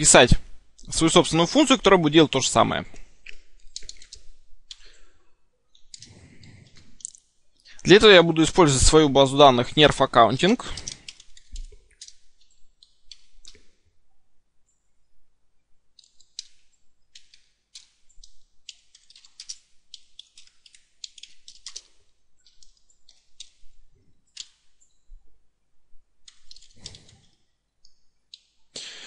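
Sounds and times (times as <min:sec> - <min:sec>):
keyboard typing: 0:02.9 - 0:05.0, 0:05.7 - 0:07.2, 0:10.6 - 0:13.7, 0:16.0 - 0:24.8, 0:26.2 - 0:28.5.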